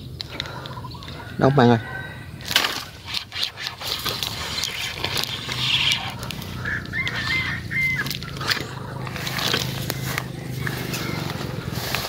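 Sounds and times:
fishing reel clicking and rustling: 0:02.7 - 0:12.0.

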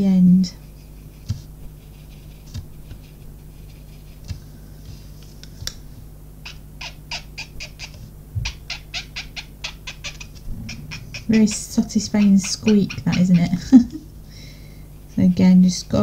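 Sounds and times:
colouring tool squeaking on card: 0:11.2 - 0:13.6.

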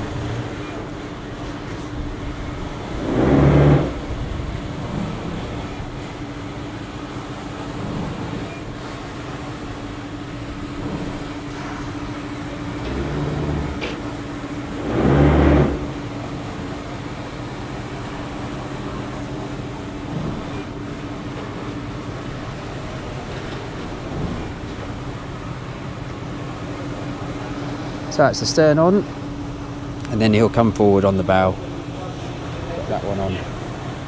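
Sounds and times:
boat machinery humming: 0:00.0 - 0:34.0
short low rumble: 0:01.9 - 0:06.0, 0:14.6 - 0:16.2.

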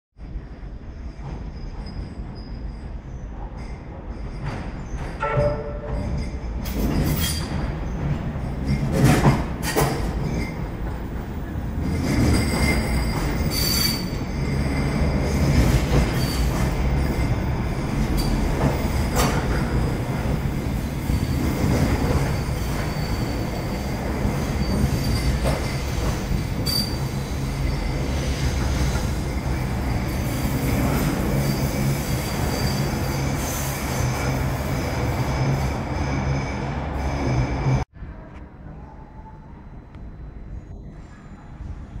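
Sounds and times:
tram wheels rumbling on rail: 0:00.2 - 0:38.4
high wheel squeal: 0:01.0 - 0:08.9, 0:11.8 - 0:37.9.

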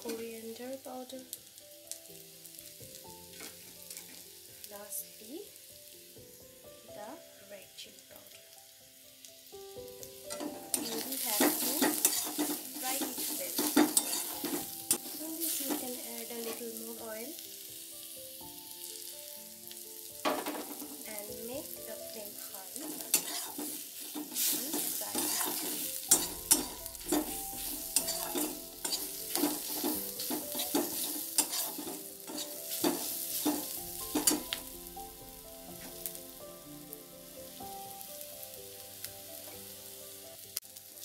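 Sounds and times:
masala sizzling in oil: 0:00.0 - 0:41.0
metal spatula scraping a pan: 0:03.3 - 0:04.3, 0:10.3 - 0:17.1, 0:20.2 - 0:34.8, 0:35.8 - 0:36.2.

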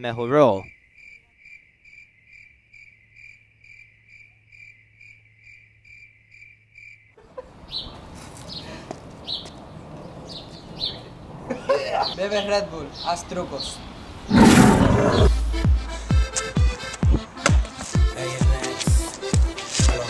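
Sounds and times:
cricket chirping: 0:00.0 - 0:07.3.

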